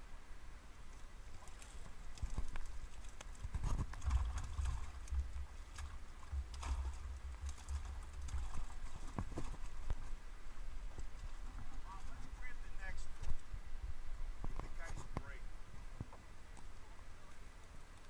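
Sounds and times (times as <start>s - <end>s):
water splashing and dripping: 0.9s - 12.3s.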